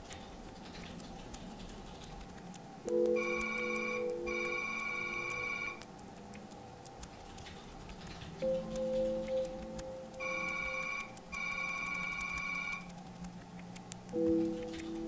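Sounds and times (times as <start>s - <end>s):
laptop keys tapping: 0.0s - 15.0s
steady electronic tone chord: 2.9s - 5.8s.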